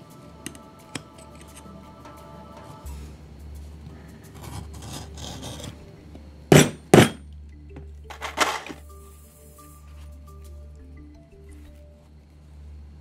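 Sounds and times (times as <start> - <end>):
soft background music: 0.0 - 13.0.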